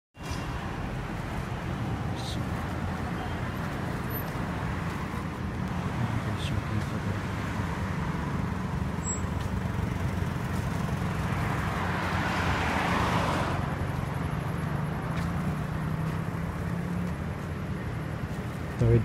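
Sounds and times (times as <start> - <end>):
low traffic engine hum: 0.2 - 19.0
car passing close by: 9.6 - 17.0.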